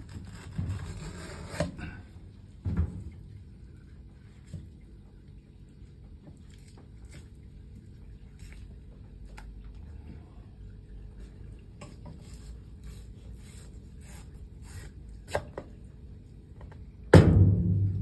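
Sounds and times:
steady low hum: 0:00.0 - 0:18.0
knife scraping fish on board: 0:00.1 - 0:01.9, 0:12.1 - 0:15.6
loud thump: 0:17.1 - 0:18.0.

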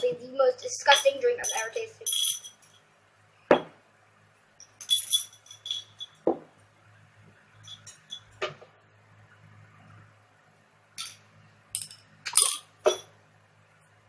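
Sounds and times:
marble rattling in glass bottle: 0:00.9 - 0:02.8, 0:04.6 - 0:06.5, 0:07.6 - 0:08.4.

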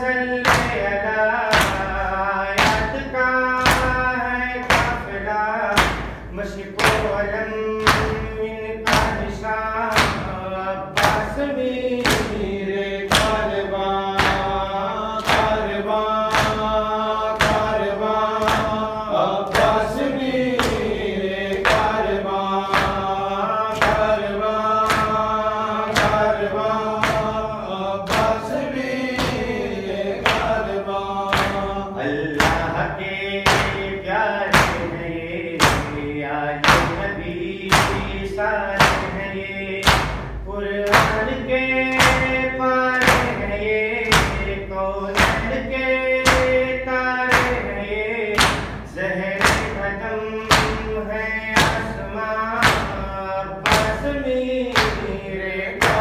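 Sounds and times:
man chanting over loudspeaker: 0:00.0 - 0:56.0
chest slaps: 0:48.3 - 0:49.8.

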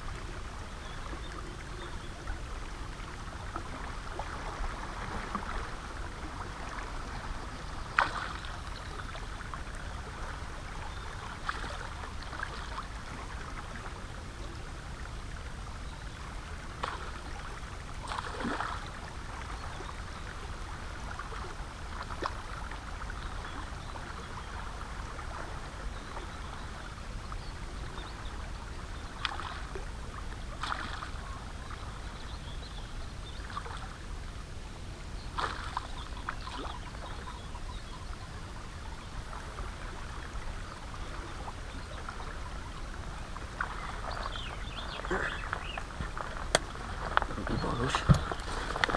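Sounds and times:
river water rumbling over rocks: 0:38.3 - 0:48.9.

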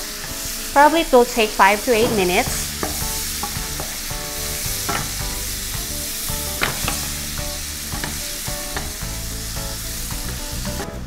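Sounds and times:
onions sizzling in oil: 0:00.0 - 0:11.0
spatula scraping a pan: 0:02.1 - 0:10.0.

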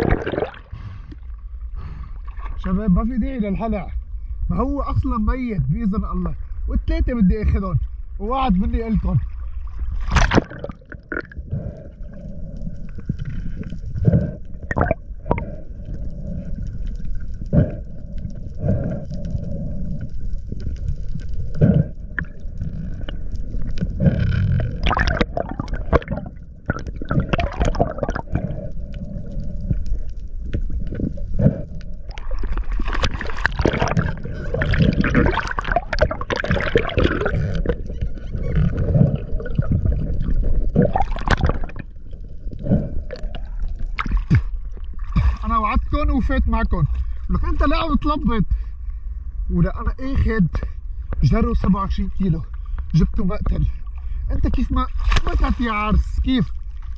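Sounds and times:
knocks and clicks underwater: 0:00.0 - 0:01.2, 0:10.0 - 0:45.4
crackling and gurgling water: 0:00.0 - 0:56.9
underwater rumble of moving water: 0:00.0 - 0:56.9.

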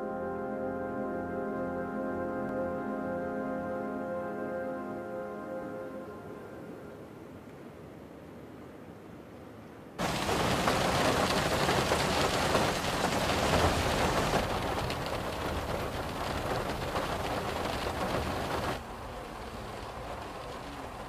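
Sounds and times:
heavy rain falling: 0:10.0 - 0:21.0.

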